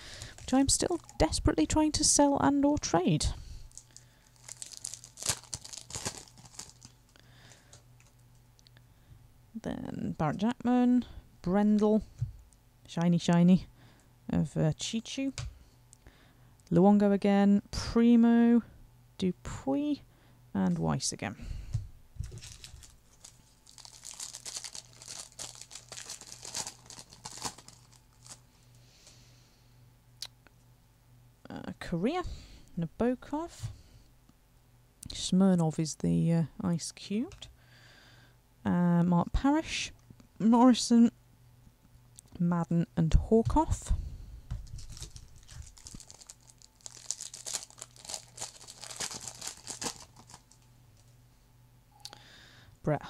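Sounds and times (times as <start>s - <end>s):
foil wrapper crinkling: 0.0s - 1.4s, 3.6s - 8.2s, 22.2s - 28.6s, 44.6s - 51.1s.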